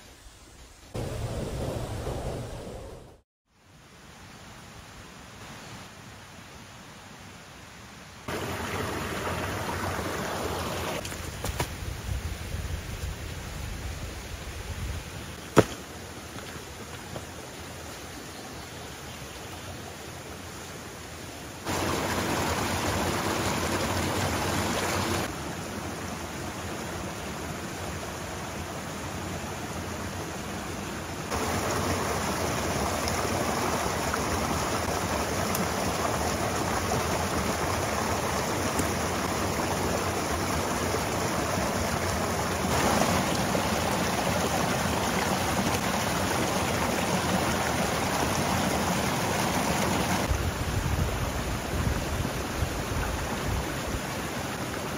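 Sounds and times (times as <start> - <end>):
heavy rain hissing: 0.6 - 3.2, 8.3 - 11.0, 21.6 - 26.0, 31.3 - 52.9.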